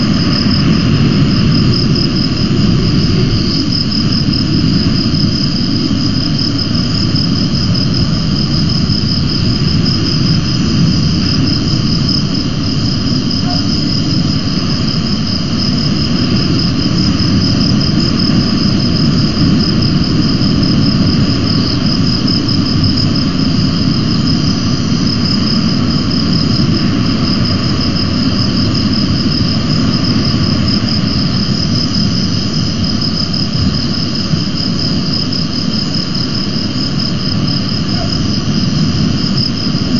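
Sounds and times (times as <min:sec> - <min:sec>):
low rushing noise: 0:00.0 - 0:13.4.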